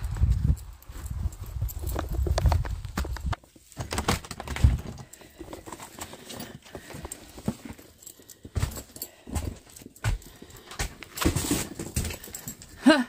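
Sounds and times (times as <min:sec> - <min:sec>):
wind rumble on microphone: 0:00.0 - 0:03.4
footsteps on hard floor: 0:08.4 - 0:12.3.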